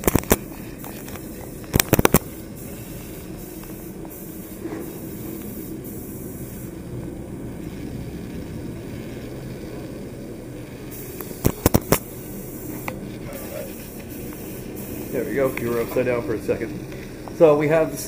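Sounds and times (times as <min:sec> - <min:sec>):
camera handling rumble: 0:00.0 - 0:02.3, 0:11.2 - 0:12.1.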